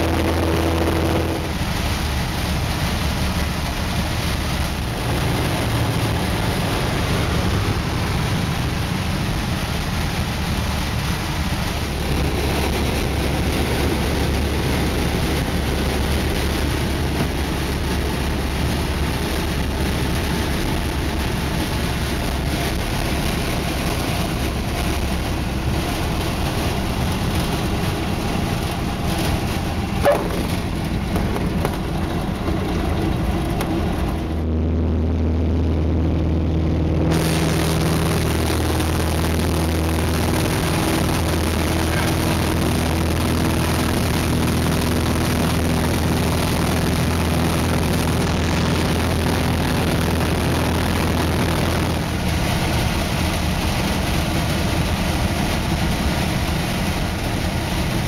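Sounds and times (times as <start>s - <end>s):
wind noise: 0.0s - 58.0s.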